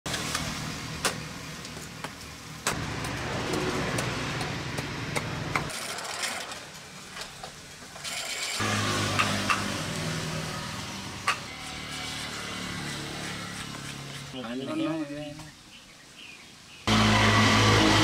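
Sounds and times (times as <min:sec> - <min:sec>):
grinding wheel sanding wood: 0:08.0 - 0:14.5, 0:16.9 - 0:18.0.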